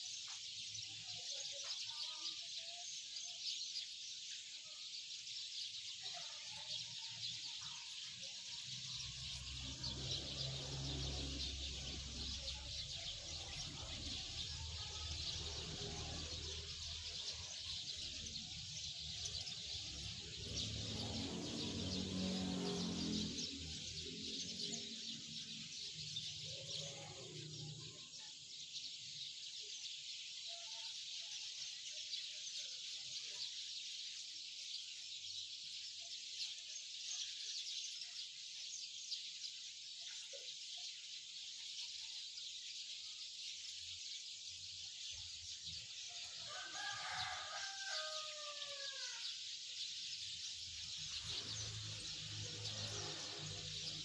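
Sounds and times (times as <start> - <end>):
birds chirping: 0.0 - 54.0
rooster crowing: 46.3 - 49.4.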